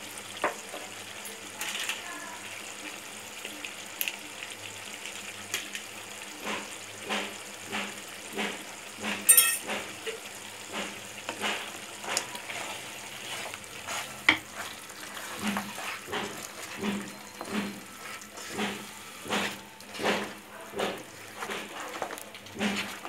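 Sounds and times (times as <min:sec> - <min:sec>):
curry bubbling and sizzling: 0:00.0 - 0:23.0
spatula scraping pan: 0:06.4 - 0:23.0
sharp metal clink: 0:09.3 - 0:09.6.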